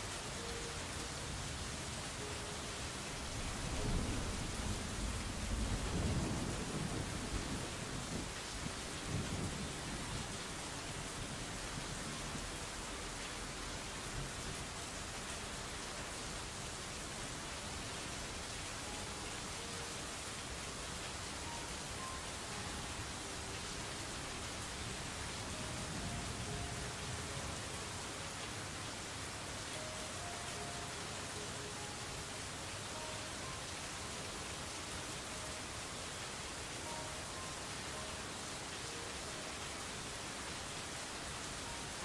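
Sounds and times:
rain hissing: 0:00.0 - 0:42.0
thunder rumbling: 0:03.3 - 0:10.2.

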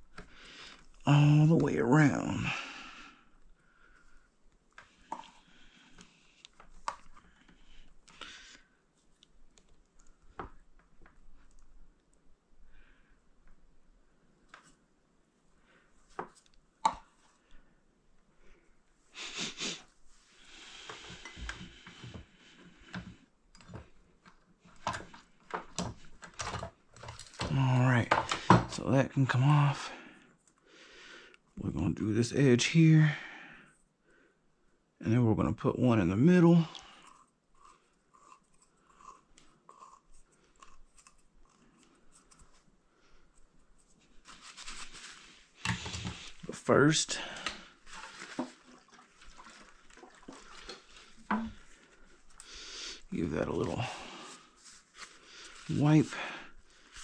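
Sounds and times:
soft rustle: 0:40.1 - 0:46.6, 0:47.6 - 0:57.0.

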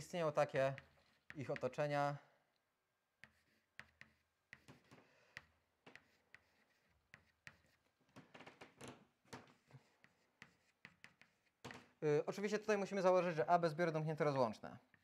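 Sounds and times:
chalk tapping on chalkboard: 0:00.7 - 0:01.8, 0:03.2 - 0:08.3, 0:09.3 - 0:12.0
chalk scratching strokes: 0:00.8 - 0:01.7, 0:03.2 - 0:07.9, 0:09.4 - 0:11.7.

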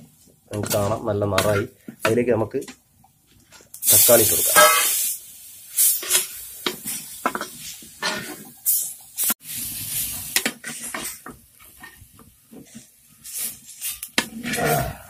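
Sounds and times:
food sizzling: 0:03.5 - 0:15.0.

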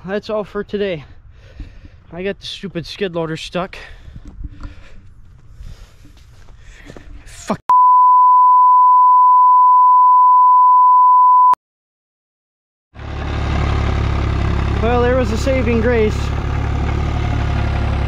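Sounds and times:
censor bleep: 0:07.7 - 0:11.6
loader engine running: 0:13.0 - 0:18.0.

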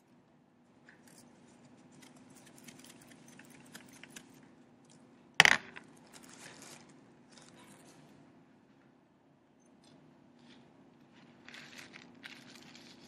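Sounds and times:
hard object clattering: 0:05.4 - 0:05.9.

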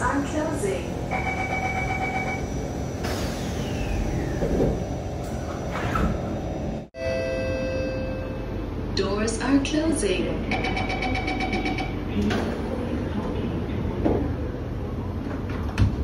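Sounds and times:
steady hum with held tones: 0:00.0 - 0:15.4
sliding doors closing with thud: 0:03.0 - 0:06.6
train door closing chime: 0:07.0 - 0:08.4.

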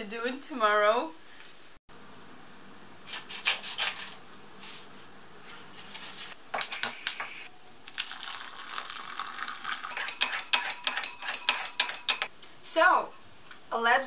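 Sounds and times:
hot water pouring into a mug: 0:07.9 - 0:11.6.

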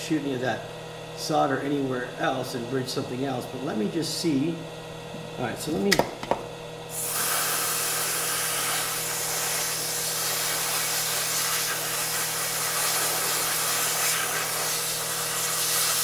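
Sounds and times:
hot air tool hissing: 0:06.9 - 0:16.0.

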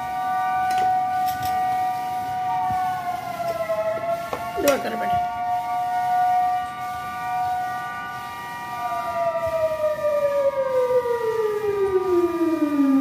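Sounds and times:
siren winding down: 0:00.0 - 0:13.0
sirens wailing: 0:00.0 - 0:13.0.

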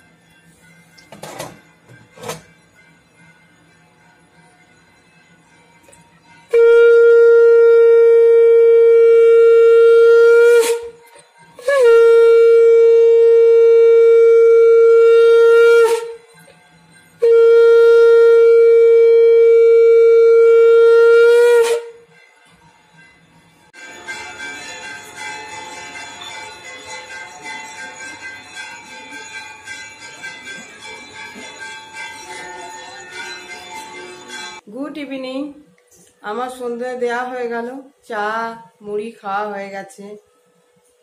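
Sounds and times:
conch shell blasts: 0:06.5 - 0:11.0, 0:11.6 - 0:16.2, 0:17.2 - 0:22.1.

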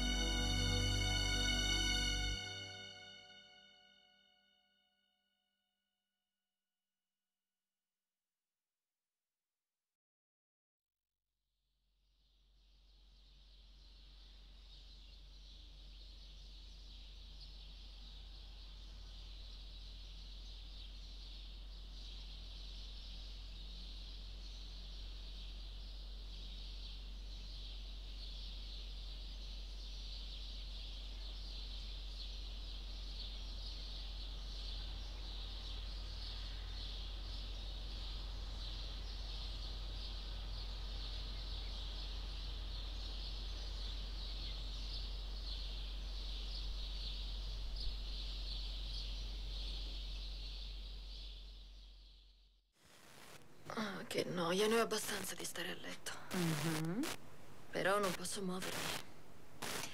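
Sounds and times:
low hum: 0:00.0 - 0:03.8
high rasping pulsing buzz: 0:00.0 - 0:04.0, 0:58.0 - 0:59.9.

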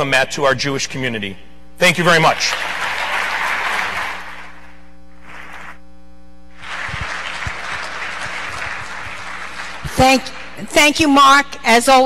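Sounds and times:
audience applauding: 0:02.3 - 0:04.6, 0:06.6 - 0:10.2.

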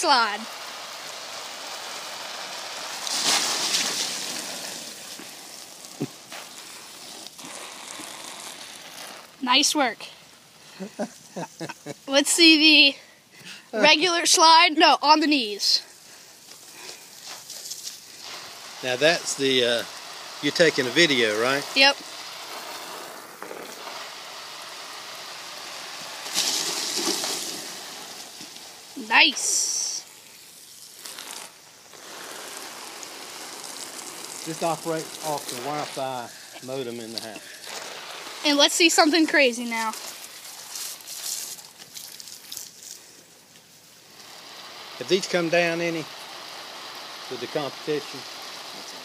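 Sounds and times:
garden hose spray hissing: 0:00.0 - 0:49.0
splashing whoosh of sliding: 0:02.9 - 0:07.4.

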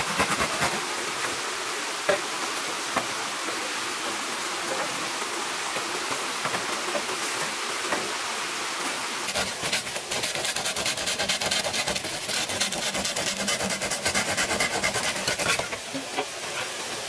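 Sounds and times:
saw rasping through bamboo: 0:00.0 - 0:00.8, 0:09.3 - 0:15.8
running water hiss: 0:00.0 - 0:17.0.

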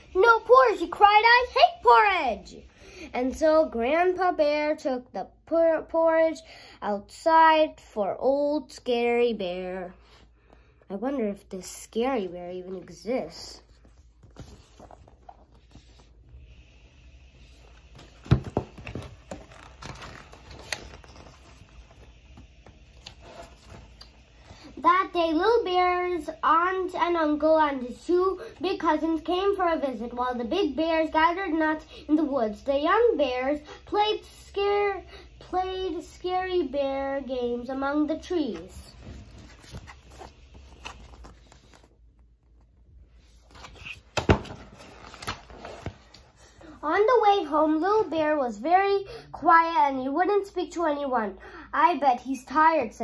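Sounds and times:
book page turning: 0:13.6 - 0:16.2, 0:17.4 - 0:24.6, 0:38.5 - 0:46.3
paper rustles and taps: 0:18.0 - 0:21.9.

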